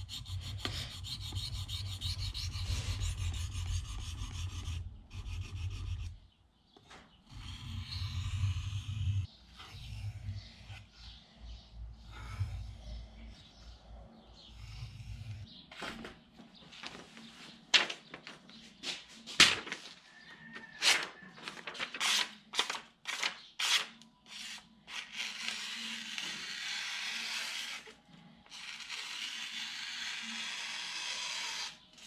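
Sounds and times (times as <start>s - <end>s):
paper crinkling: 16.8s - 20.0s, 20.8s - 23.3s.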